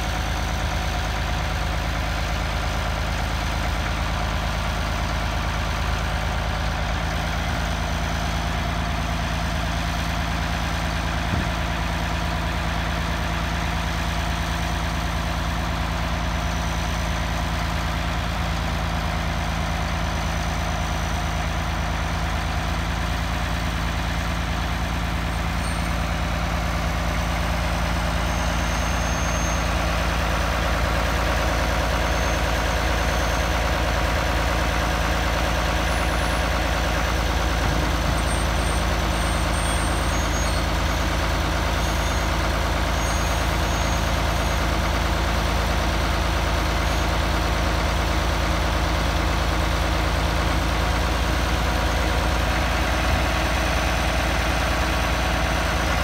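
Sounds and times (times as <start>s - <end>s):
tractor engine idling: 0.0s - 56.0s.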